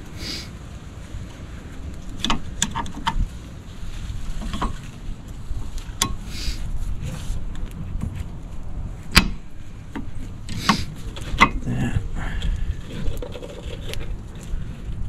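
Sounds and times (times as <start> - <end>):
metallic clicks and knocks: 9.1 - 11.6.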